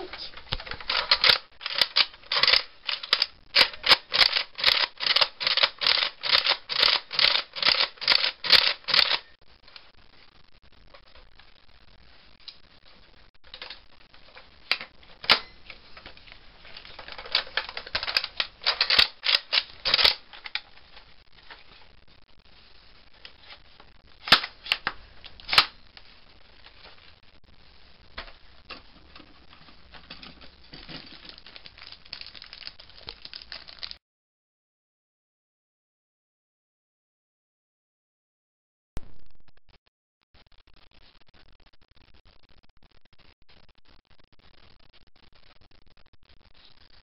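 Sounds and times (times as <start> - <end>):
plastic blaster snaps and clacks: 0.5 - 9.2, 16.8 - 20.7, 24.2 - 25.8.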